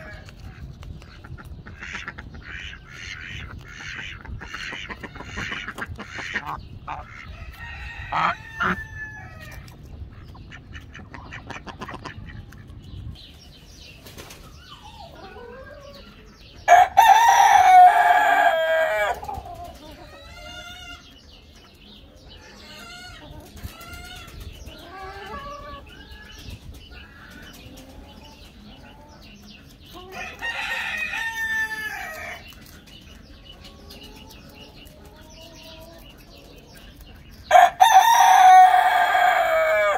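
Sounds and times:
chicken calls: 0.0 - 13.2, 13.9 - 39.9
rooster crowing: 16.7 - 19.2, 37.5 - 39.9.

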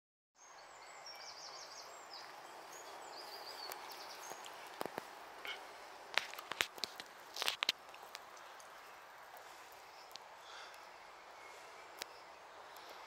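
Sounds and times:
birds chirping: 0.4 - 13.0
outdoor background hiss: 0.4 - 13.0.

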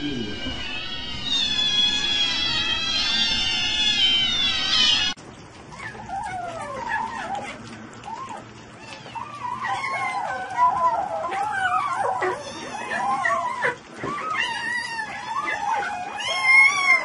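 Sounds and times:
kittens mewing: 0.0 - 5.2, 5.8 - 17.0.

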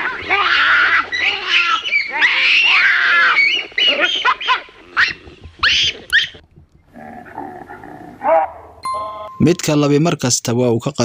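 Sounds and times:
baboons calling: 0.0 - 8.7.

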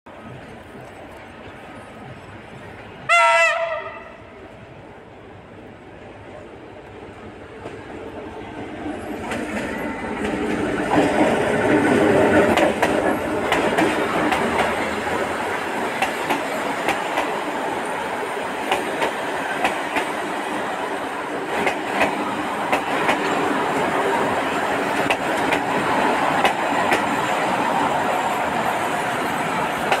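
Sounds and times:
train wheels rumbling on rails: 0.1 - 30.0
wheels clacking on rail joints: 8.8 - 20.4, 21.4 - 30.0.

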